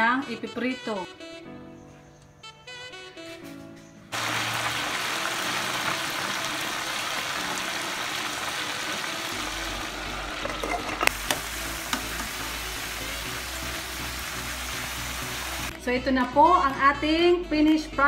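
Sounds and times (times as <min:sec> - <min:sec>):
chicken sizzling in hot oil: 0:04.1 - 0:15.7.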